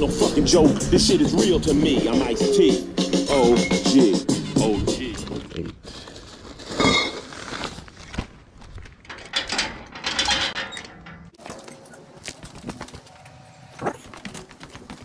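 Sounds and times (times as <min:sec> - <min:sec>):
metal gate unlatched and opened: 0:09.0 - 0:12.1.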